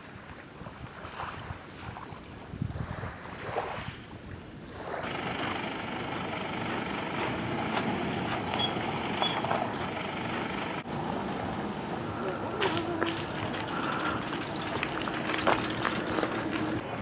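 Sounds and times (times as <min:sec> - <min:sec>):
faint wind: 0:00.0 - 0:17.0
pickup truck engine running: 0:05.0 - 0:12.5
light clicks and rattles: 0:12.6 - 0:16.8.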